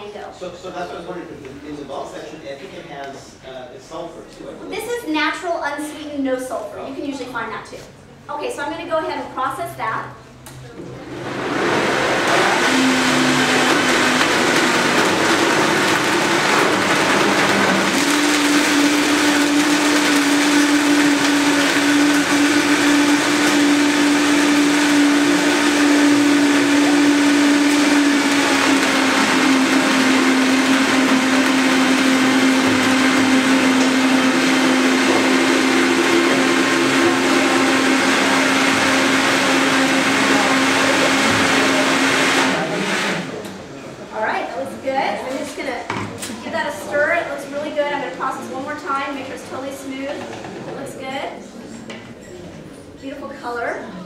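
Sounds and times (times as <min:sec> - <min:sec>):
blender motor running: 0:11.0 - 0:43.6.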